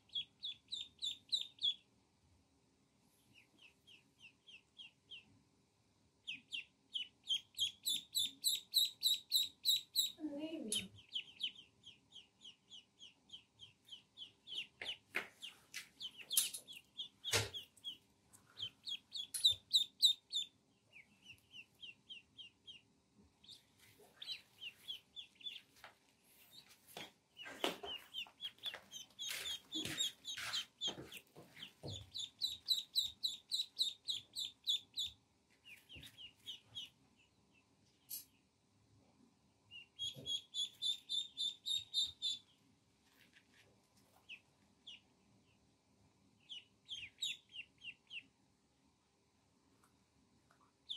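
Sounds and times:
ducklings peeping: 0.0s - 2.0s, 3.2s - 5.5s, 6.2s - 38.5s, 39.6s - 42.6s, 43.9s - 48.4s, 50.6s - 50.9s
scuffling noises: 25.6s - 32.1s.

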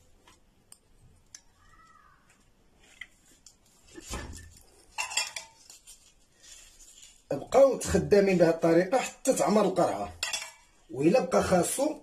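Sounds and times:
knife and utensils clinking: 4.9s - 5.9s, 9.9s - 10.9s.

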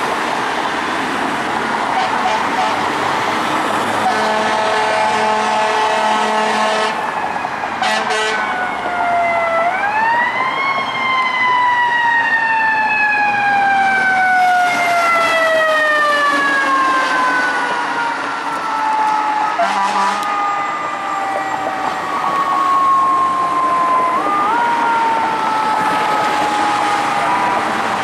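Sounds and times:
fire truck air horns blaring: 1.8s - 10.2s, 13.6s - 28.0s
siren winding up and down: 8.4s - 28.0s.

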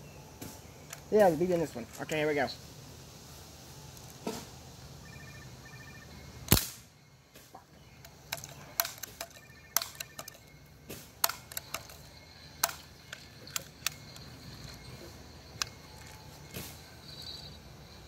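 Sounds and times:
air rifle shot: 6.5s - 6.9s
mechanical clicks and taps: 11.2s - 14.8s.

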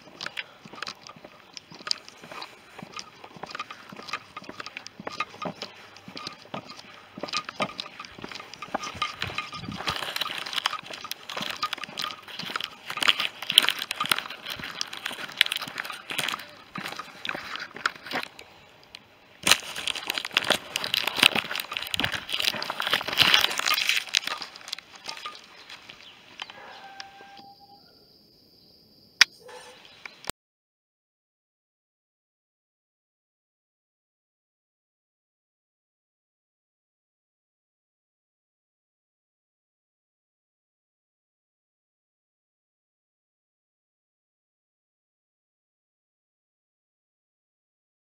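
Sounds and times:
footsteps crunching on dry track: 0.0s - 27.3s
grass rustling against camera: 0.0s - 27.6s.

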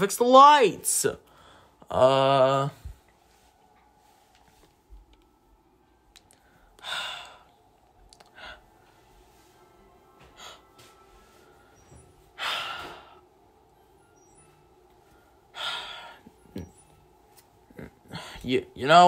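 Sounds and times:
faint background music: 0.0s - 19.0s.

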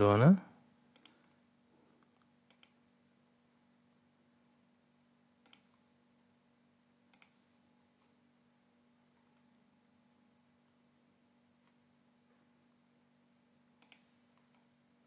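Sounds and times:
faint steady hum: 0.0s - 15.0s
computer mouse clicks: 0.9s - 1.4s, 2.0s - 2.8s, 5.4s - 5.8s, 7.1s - 8.1s, 13.8s - 14.7s.

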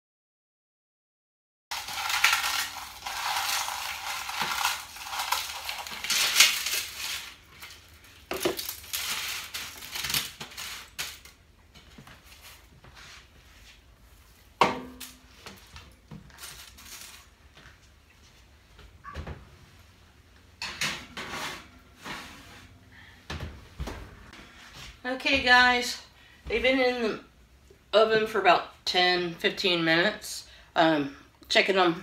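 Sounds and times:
eggshells crunching onto a tray: 1.7s - 11.3s.

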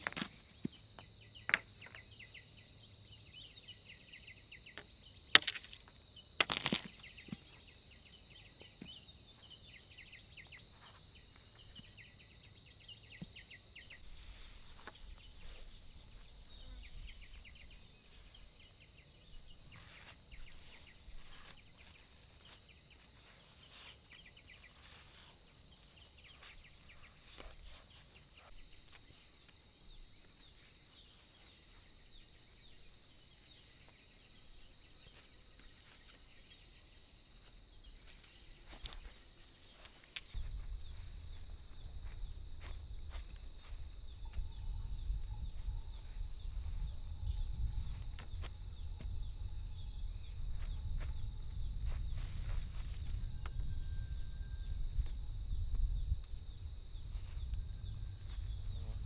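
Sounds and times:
bamboo poles clicking and tapping: 0.0s - 2.0s, 4.8s - 7.4s
high-pitched insect chorus: 0.0s - 59.0s.

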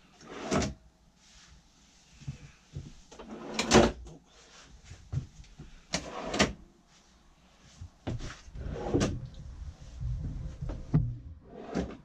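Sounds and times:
drawers sliding and knocking: 0.2s - 0.8s, 3.2s - 4.0s, 5.9s - 6.6s, 8.1s - 9.3s, 10.1s - 12.0s.

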